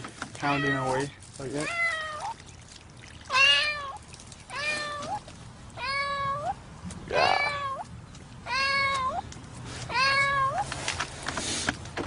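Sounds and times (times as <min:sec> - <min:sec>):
cat meowing in distress: 0:00.4 - 0:01.0, 0:01.6 - 0:02.4, 0:03.3 - 0:05.2, 0:05.8 - 0:09.2, 0:09.9 - 0:10.7.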